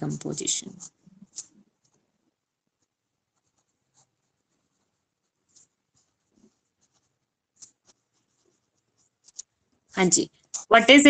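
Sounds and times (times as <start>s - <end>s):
pen scratching on paper: 2.7s - 9.9s.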